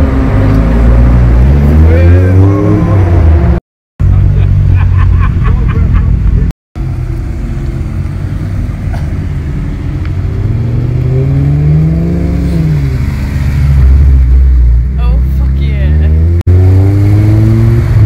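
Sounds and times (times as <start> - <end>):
engine revving: 0.0 - 4.5, 6.3 - 18.0
low engine rumble: 4.0 - 11.2.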